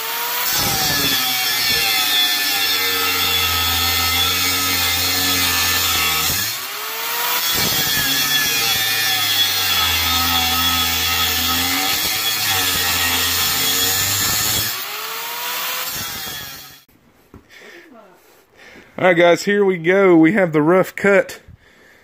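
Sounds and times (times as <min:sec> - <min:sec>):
angle grinder cutting steel: 0:00.0 - 0:16.9.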